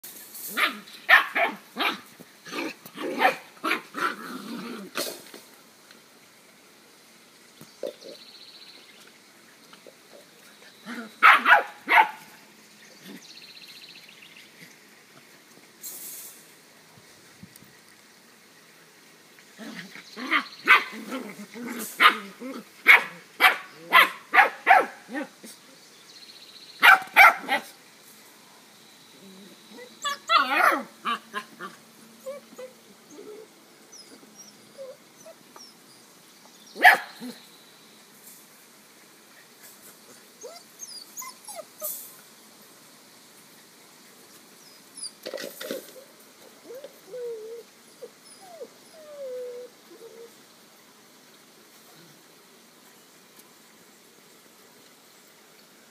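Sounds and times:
puppies barking: 0:00.6 - 0:04.2, 0:10.9 - 0:12.4, 0:20.2 - 0:25.3, 0:26.8 - 0:27.8, 0:30.0 - 0:32.8, 0:36.8 - 0:37.4
puppy yapping: 0:11.2 - 0:12.3, 0:26.8 - 0:27.7.

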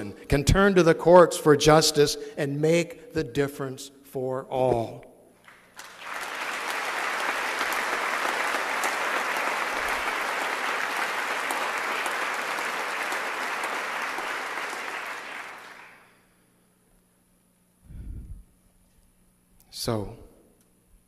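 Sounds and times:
audience applauding: 0:05.4 - 0:16.2.

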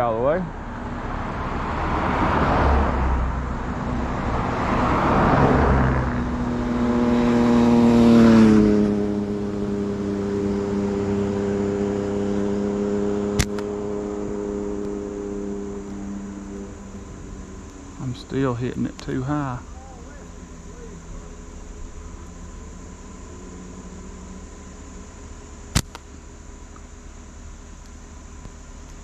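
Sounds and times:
cars passing on road: 0:00.0 - 0:29.0
slingshot snap: 0:13.4 - 0:13.7, 0:25.7 - 0:26.1.

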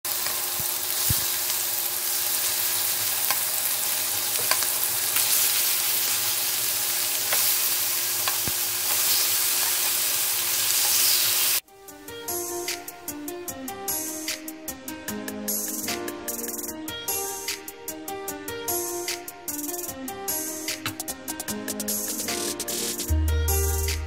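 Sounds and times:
chicken sizzling in oil: 0:00.1 - 0:11.6.

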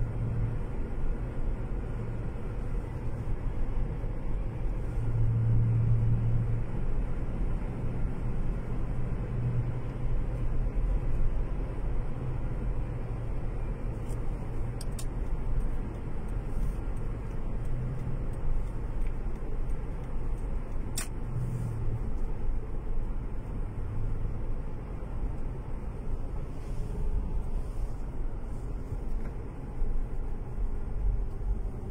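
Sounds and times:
engine and tyre rumble: 0:00.0 - 0:31.9
sharp light clicks: 0:17.0 - 0:21.2.

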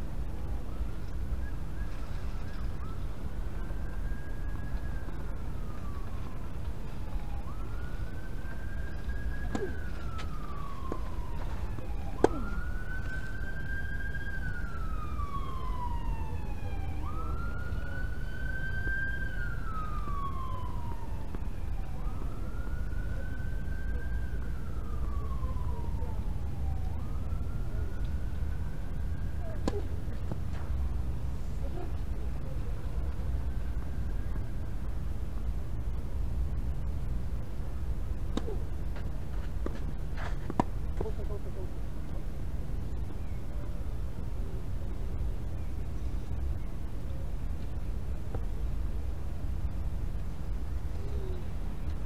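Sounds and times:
siren wailing: 0:00.4 - 0:32.0.

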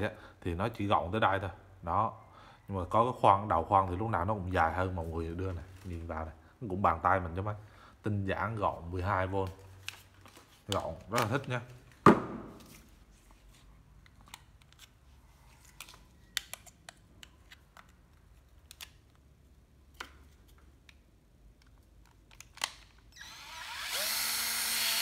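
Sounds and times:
cordless drill motor: 0:23.1 - 0:25.0.

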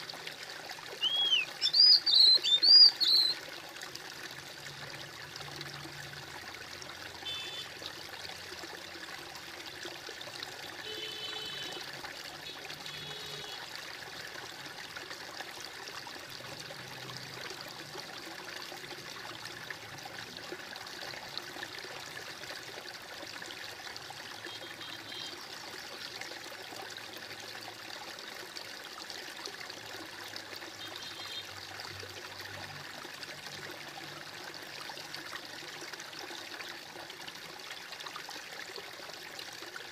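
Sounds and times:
stream water trickling: 0:00.0 - 0:39.9
short high chirps: 0:01.0 - 0:03.4.

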